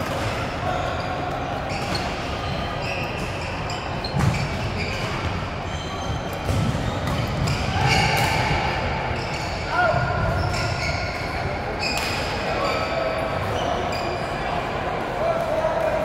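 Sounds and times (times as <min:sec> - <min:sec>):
shoe squeaks on court floor: 0:00.7 - 0:08.5, 0:09.2 - 0:14.4.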